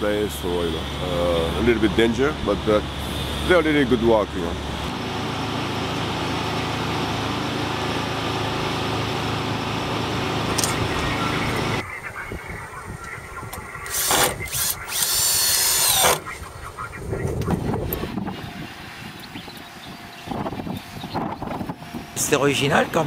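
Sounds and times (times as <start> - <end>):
traffic-like background noise: 0.0 - 23.0
cordless drill driving screws: 13.8 - 16.2.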